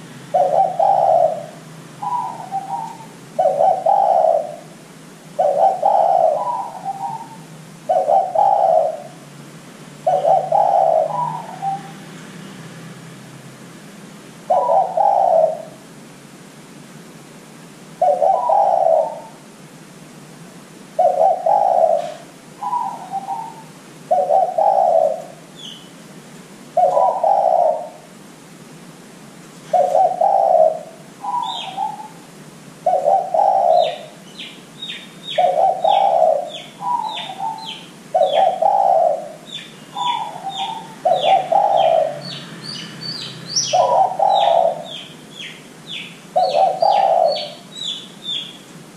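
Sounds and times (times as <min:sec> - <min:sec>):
dove cooing: 0:00.0 - 0:09.3, 0:10.0 - 0:12.1, 0:14.5 - 0:15.9, 0:18.0 - 0:19.5, 0:21.0 - 0:25.8, 0:26.7 - 0:28.1, 0:29.7 - 0:48.6
small bird chirping rapidly: 0:42.2 - 0:46.2.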